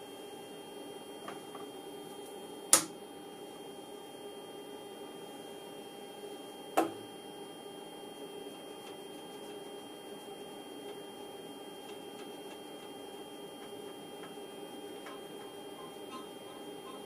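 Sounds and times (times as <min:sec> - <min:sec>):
electrical hum of test equipment: 0:00.0 - 0:17.0
sharp click: 0:02.7 - 0:03.0.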